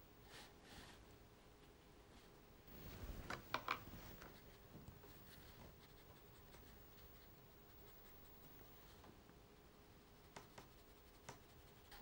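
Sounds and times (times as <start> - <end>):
brush scratching on paper: 4.2 - 9.0, 10.0 - 12.0.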